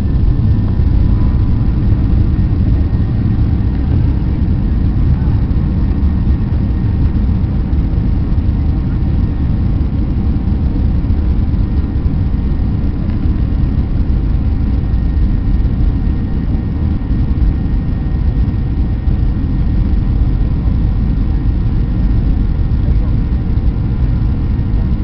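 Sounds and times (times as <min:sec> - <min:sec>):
faint steady whine: 0:00.0 - 0:25.0
jet engines loud rumble: 0:00.0 - 0:25.0.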